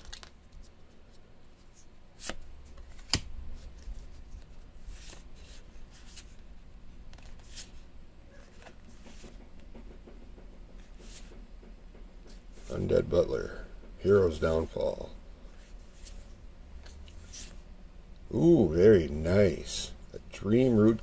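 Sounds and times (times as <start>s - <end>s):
cards sliding and swishing: 0.0s - 6.4s, 7.1s - 9.4s, 10.8s - 11.4s, 15.5s - 17.7s.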